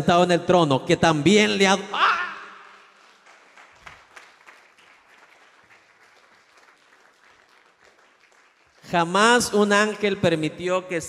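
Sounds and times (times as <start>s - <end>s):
faint scattered clapping: 2.7s - 9.1s.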